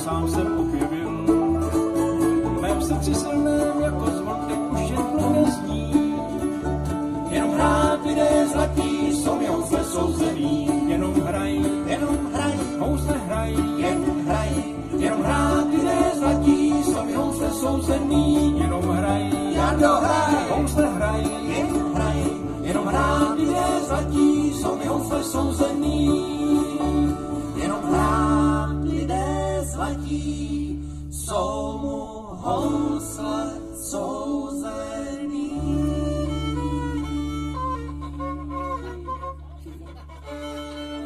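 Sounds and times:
strummed acoustic guitars: 0.0s - 31.3s
bass: 0.0s - 41.0s
mandolin: 0.0s - 41.0s
picked banjo: 0.0s - 41.0s.

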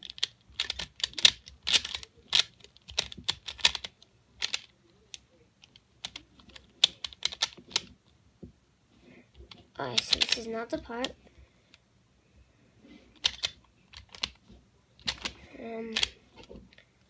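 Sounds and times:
plastic puzzle clicking: 0.0s - 7.9s, 9.4s - 11.2s, 13.2s - 14.4s, 15.0s - 16.6s.

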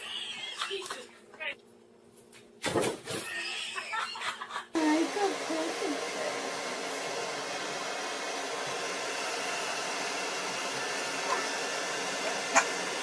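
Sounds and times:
hair dryer blowing: 4.8s - 13.0s.

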